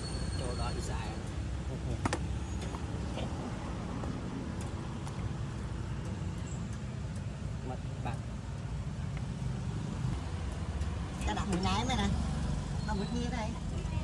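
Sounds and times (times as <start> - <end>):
low rumble of traffic: 0.0 - 14.0.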